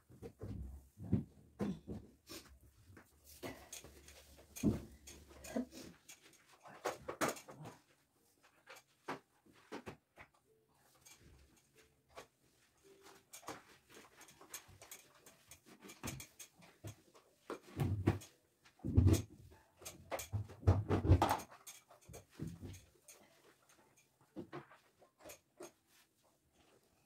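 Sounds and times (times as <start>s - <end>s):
knocks and clatters from cleaning: 3.4s - 7.9s, 11.0s - 26.0s.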